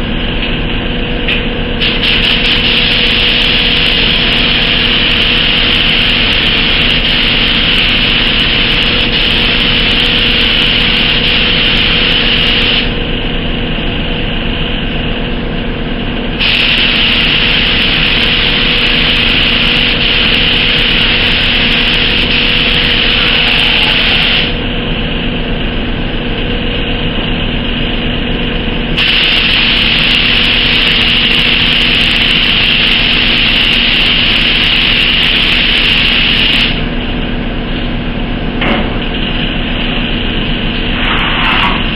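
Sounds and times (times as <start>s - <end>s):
steady low hum: 0.0s - 41.9s
spray gun hissing: 1.8s - 13.0s, 16.4s - 24.6s, 29.0s - 36.8s.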